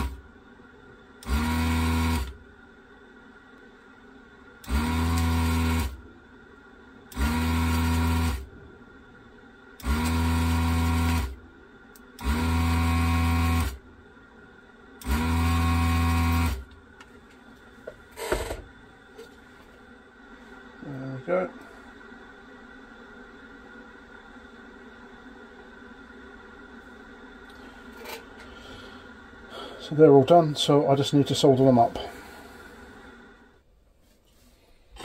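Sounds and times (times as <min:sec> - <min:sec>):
desoldering vacuum pump bursts: 0:00.0 - 0:00.3, 0:01.1 - 0:02.5, 0:04.6 - 0:06.1, 0:07.0 - 0:08.6, 0:09.8 - 0:13.9, 0:15.0 - 0:16.8, 0:18.0 - 0:18.8
motor hum: 0:00.0 - 0:33.6.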